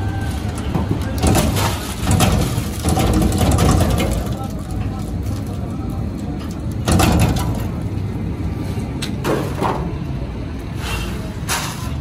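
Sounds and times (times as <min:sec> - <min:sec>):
peanuts rattling on metal: 0:00.0 - 0:07.9
roasting machine humming: 0:00.0 - 0:12.0.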